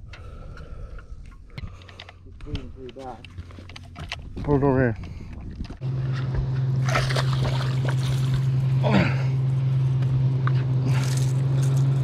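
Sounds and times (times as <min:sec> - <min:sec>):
electric boat motor humming: 0:05.8 - 0:12.0
water splashes: 0:06.8 - 0:08.5.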